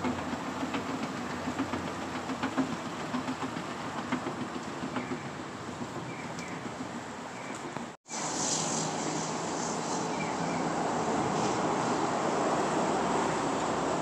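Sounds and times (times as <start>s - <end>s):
escalator rumbling and clicking: 0.0s - 8.0s.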